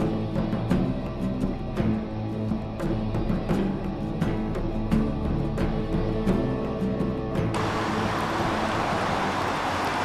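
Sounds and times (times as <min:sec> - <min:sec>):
road traffic rushing: 0:07.6 - 0:10.0.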